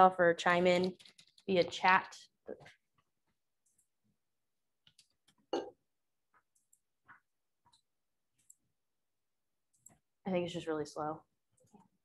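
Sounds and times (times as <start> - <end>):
keyboard and mouse clicks: 0.6 - 1.7, 4.8 - 5.5, 6.4 - 8.7, 9.7 - 10.1.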